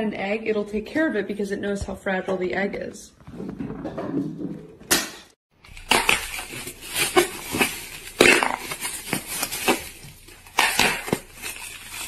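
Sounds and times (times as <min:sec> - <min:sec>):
plastic bag crinkling: 0:05.6 - 0:12.0.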